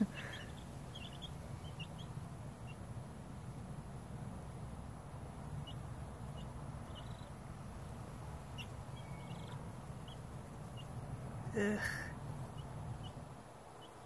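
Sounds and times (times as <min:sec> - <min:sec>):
chicks peeping: 0:00.0 - 0:14.0.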